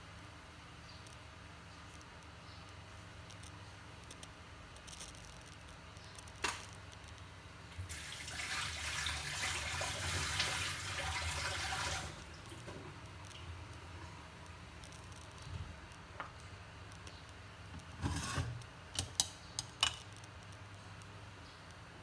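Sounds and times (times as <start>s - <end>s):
water running: 7.7s - 14.0s.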